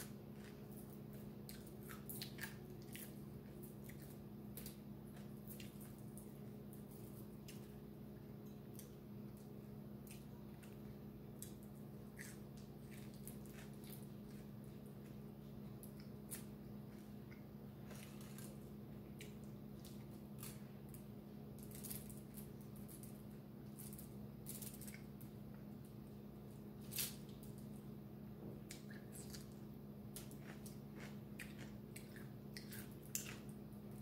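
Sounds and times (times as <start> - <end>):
steady low hum: 0.0 - 34.0
chewing clicks and smacks: 0.4 - 6.3, 30.2 - 33.5.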